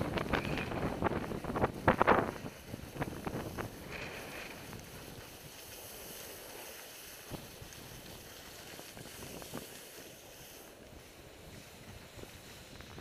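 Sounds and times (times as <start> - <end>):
wind rushing over microphone: 0.0 - 5.6, 7.2 - 10.0, 11.2 - 13.0
skis sliding over snow: 0.0 - 13.0.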